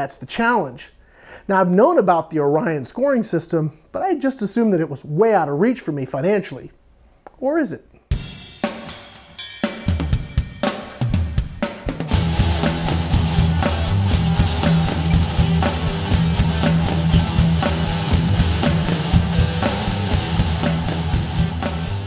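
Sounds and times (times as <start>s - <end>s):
drum beat: 8.1s - 22.0s
electric guitar: 12.0s - 22.0s.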